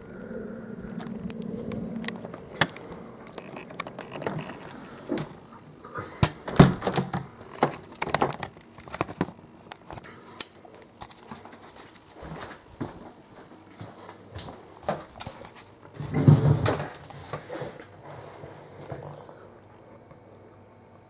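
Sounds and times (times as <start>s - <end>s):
distant helicopter hum: 0.0s - 6.2s.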